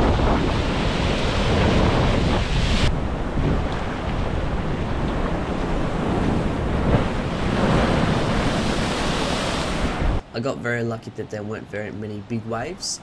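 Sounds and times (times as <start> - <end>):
ocean surf on rocky shore: 0.0 - 10.2
wind buffeting microphone: 0.0 - 10.2.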